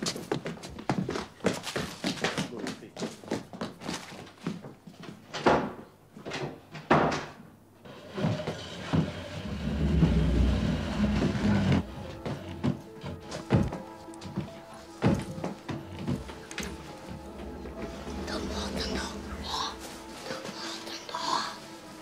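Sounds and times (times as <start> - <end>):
footsteps running: 0.0 - 5.2, 8.2 - 18.3
wooden chair scraping across floor: 7.8 - 22.0.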